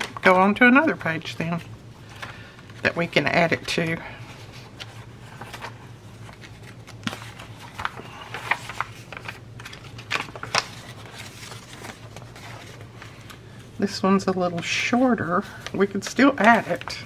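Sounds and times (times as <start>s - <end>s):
paper pages rustling: 0.0s - 17.0s
sharp paper crinkles: 4.6s - 13.5s.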